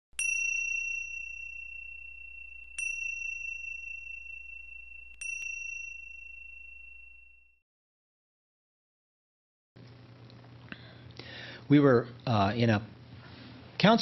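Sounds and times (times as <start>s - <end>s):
high bright chime: 0.1s - 7.6s.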